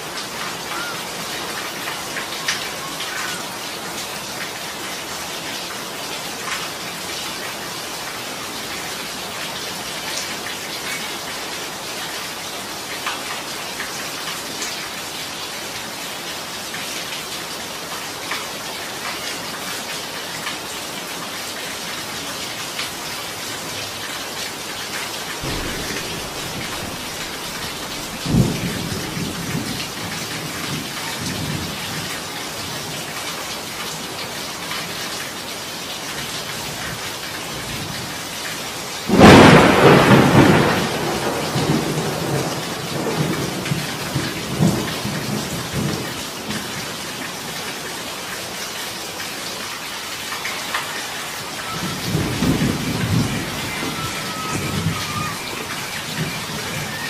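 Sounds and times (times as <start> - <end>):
heavy rain falling: 0.0 - 57.0
thunder: 25.4 - 31.8, 39.1 - 46.1, 51.7 - 57.0.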